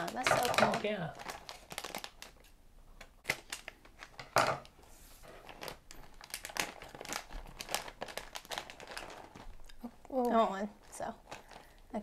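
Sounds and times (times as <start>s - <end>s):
plastic pouch crinkling: 0.0s - 2.5s, 5.3s - 12.0s.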